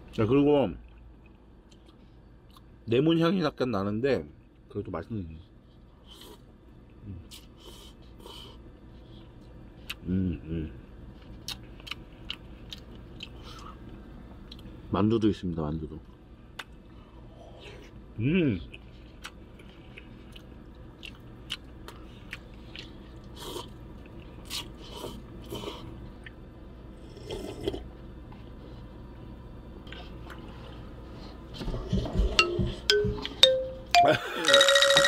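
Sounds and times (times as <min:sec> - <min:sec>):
slurping and chewing: 0:18.7 - 0:26.4, 0:27.0 - 0:27.9
stepped rising tones effect: 0:32.1 - 0:35.0.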